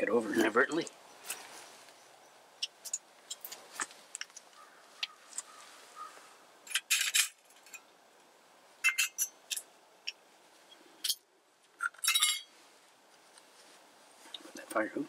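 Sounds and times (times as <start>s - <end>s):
metal cookware clinking: 8.8s - 9.6s, 11.8s - 12.5s.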